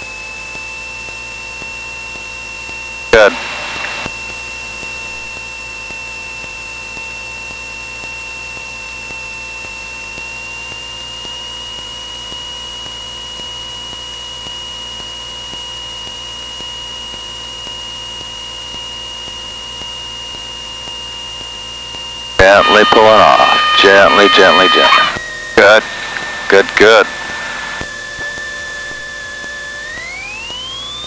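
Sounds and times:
airplane engine and propeller drone: 0:00.0 - 0:11.0, 0:22.2 - 0:31.0
thin high whine: 0:22.4 - 0:31.0.

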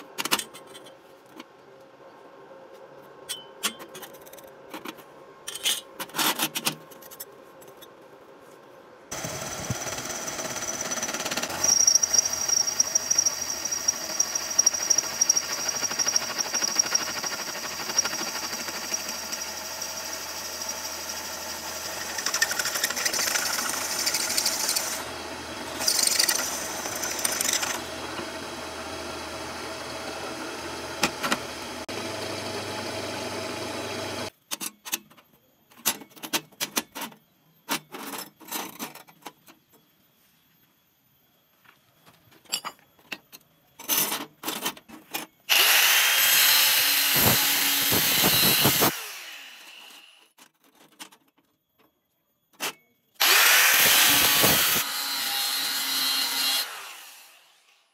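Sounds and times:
drill press running: 0:09.1 - 0:34.3, 0:45.5 - 0:49.2
drill bit squealing: 0:10.5 - 0:25.0, 0:25.8 - 0:27.8.

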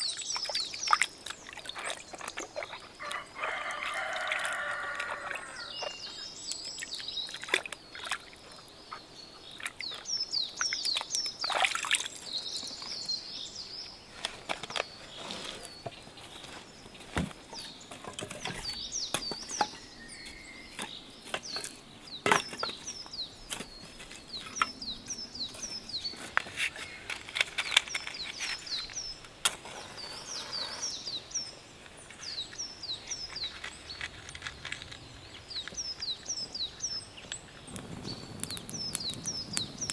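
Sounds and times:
water splashing in a tub: 0:00.0 - 0:03.0, 0:06.8 - 0:08.6, 0:10.6 - 0:12.2
small birds chirping: 0:00.0 - 0:39.9.

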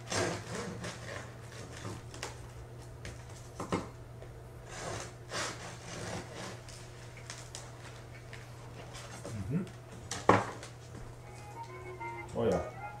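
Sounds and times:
knife sawing through crusty bread: 0:00.1 - 0:01.3, 0:04.7 - 0:06.6
low steady hum: 0:06.7 - 0:13.0.

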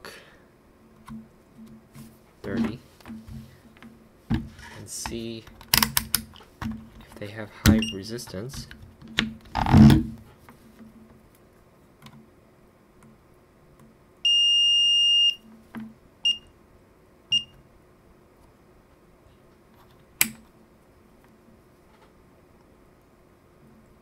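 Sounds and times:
multimeter continuity beeps: 0:07.8 - 0:08.0, 0:14.2 - 0:15.4, 0:16.2 - 0:16.5, 0:17.3 - 0:17.6.

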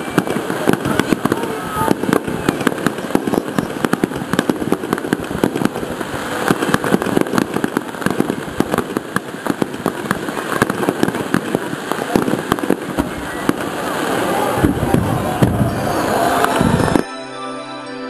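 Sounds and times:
fireworks bangs and crackles: 0:00.0 - 0:17.1
rumble of overlapping booms: 0:14.6 - 0:15.8.

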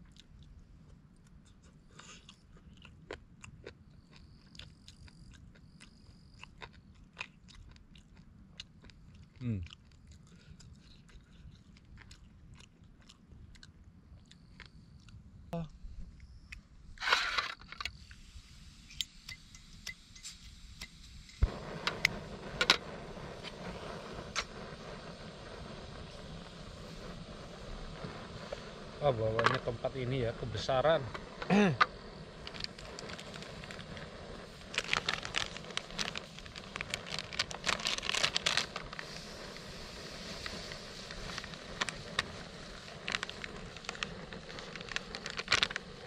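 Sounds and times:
burner flame hissing: 0:17.0 - 0:46.0
plastic packet crinkling: 0:32.4 - 0:34.0, 0:34.6 - 0:39.1, 0:40.4 - 0:46.0.

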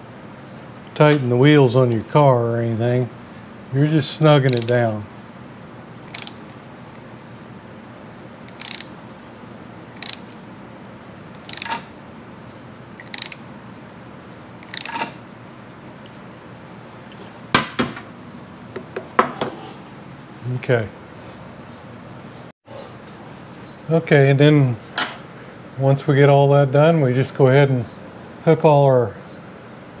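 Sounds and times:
socket ratchet clicking: 0:04.4 - 0:04.8, 0:06.0 - 0:06.6, 0:08.4 - 0:09.0, 0:09.9 - 0:10.4, 0:11.3 - 0:11.9, 0:13.0 - 0:13.4, 0:14.6 - 0:15.1.

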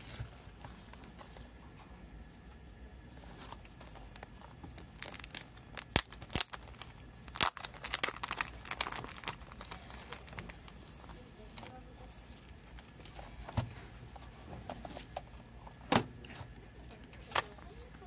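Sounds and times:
plastic shrink-wrap crackling: 0:03.6 - 0:10.8.

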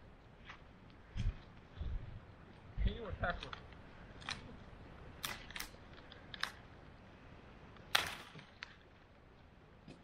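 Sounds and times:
sharp knocks and cracks: 0:07.8 - 0:08.9.

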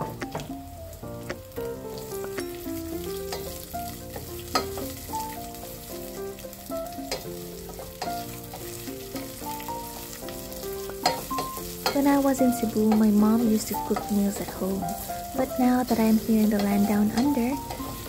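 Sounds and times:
onions sizzling in oil: 0:00.0 - 0:18.0
soft background music: 0:00.0 - 0:18.0
wooden spoon clicking against pan: 0:03.3 - 0:05.0, 0:07.0 - 0:09.6, 0:10.4 - 0:14.7, 0:16.1 - 0:18.0.

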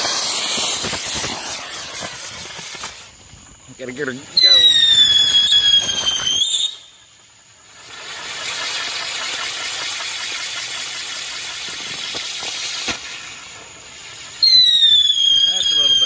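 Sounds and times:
firework sparks hissing and crackling: 0:00.0 - 0:16.0
firework whistle: 0:00.0 - 0:16.0.

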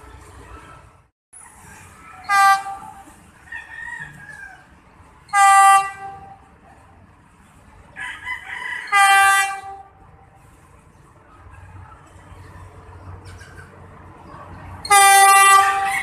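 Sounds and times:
train horn blasts: 0:02.2 - 0:03.2, 0:05.3 - 0:06.5, 0:08.9 - 0:10.0, 0:14.8 - 0:16.0.

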